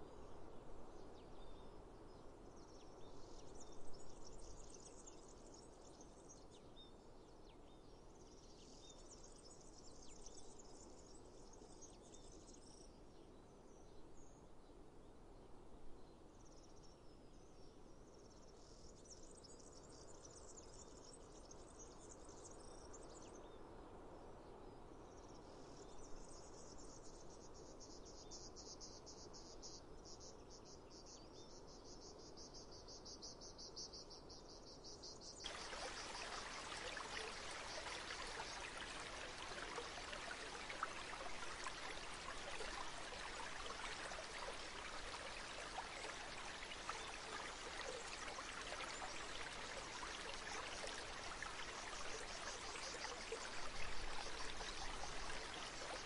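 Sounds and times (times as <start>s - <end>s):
steady hiss: 35.5s - 56.0s.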